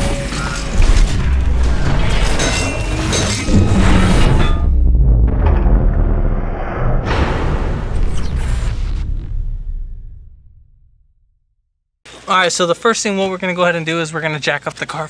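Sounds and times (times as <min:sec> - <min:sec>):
music with heavy bass booms: 0:00.0 - 0:11.3
crashing whooshing sound effects: 0:00.6 - 0:11.2.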